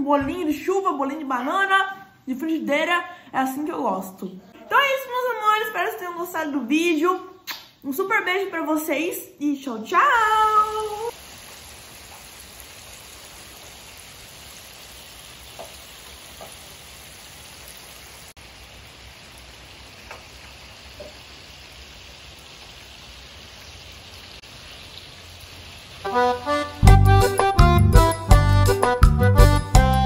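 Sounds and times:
steady rain falling: 0:10.5 - 0:27.0.

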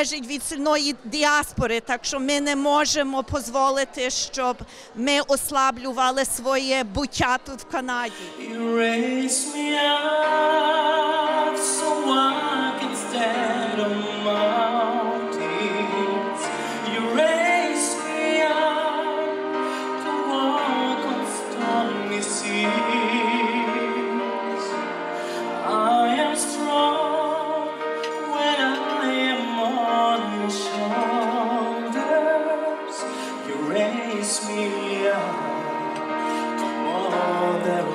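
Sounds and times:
instrumental accompaniment: 0:08.1 - 0:37.9
man singing into microphone: 0:08.1 - 0:37.9.

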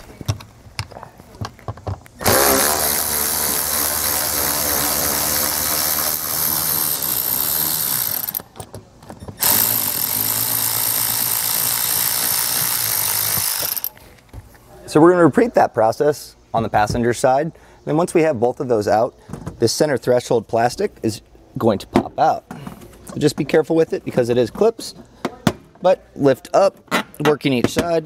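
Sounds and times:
electric ratchet running: 0:02.2 - 0:08.5, 0:09.4 - 0:14.0.

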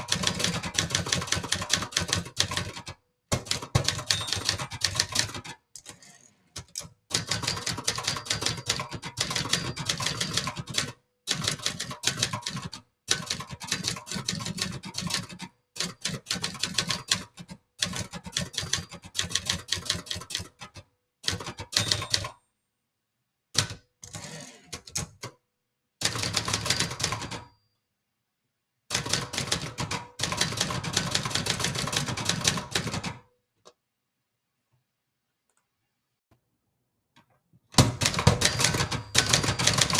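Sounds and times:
manual typewriter typing: 0:00.0 - 0:22.4, 0:26.0 - 0:27.5, 0:28.9 - 0:33.2, 0:37.8 - 0:39.9.

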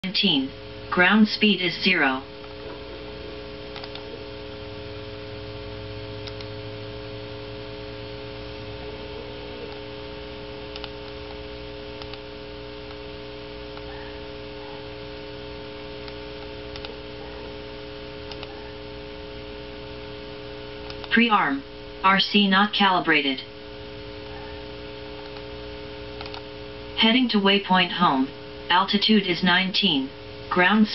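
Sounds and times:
electrical hum: 0:00.0 - 0:30.9
lower hum layer: 0:00.0 - 0:30.9
faint clicks: 0:03.7 - 0:04.1, 0:06.2 - 0:06.5, 0:10.7 - 0:11.4, 0:12.0 - 0:12.2, 0:16.0 - 0:17.0, 0:18.2 - 0:18.5, 0:20.8 - 0:21.2, 0:25.2 - 0:25.5, 0:26.2 - 0:26.5.

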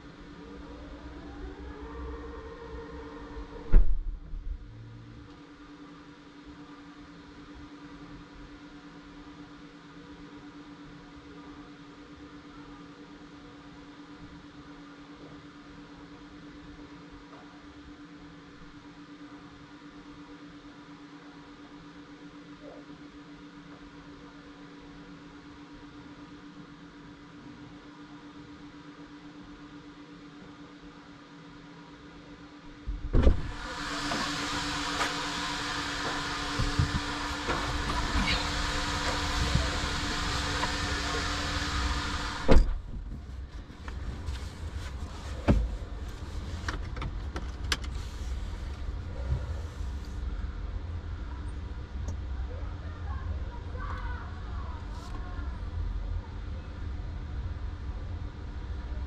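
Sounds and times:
high suction tone: 0:00.3 - 0:04.6
loud thump: 0:03.7 - 0:04.2, 0:32.9 - 0:33.6, 0:42.4 - 0:43.0
vacuum humming: 0:33.1 - 0:52.3.

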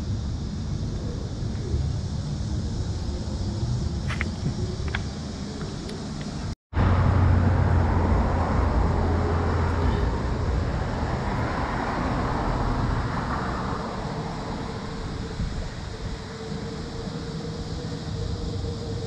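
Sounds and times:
car passing close: 0:06.7 - 0:18.6.

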